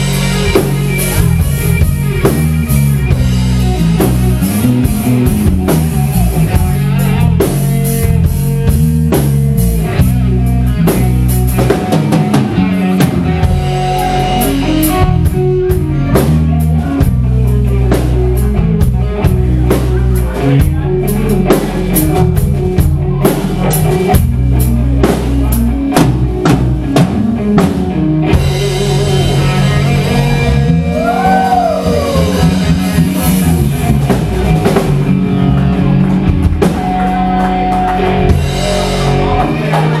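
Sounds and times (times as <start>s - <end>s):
bass guitar: 0.0s - 40.0s
drum kit: 0.0s - 40.0s
electric guitar: 0.0s - 40.0s.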